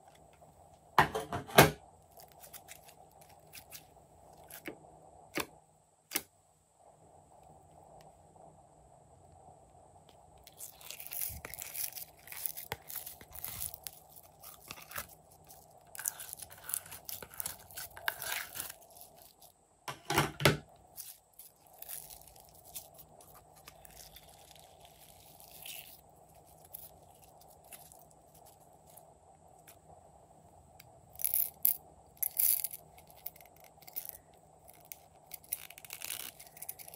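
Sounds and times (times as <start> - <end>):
slime crackling and squishing: 10.5 - 19.5, 20.9 - 29.0, 32.7 - 36.9.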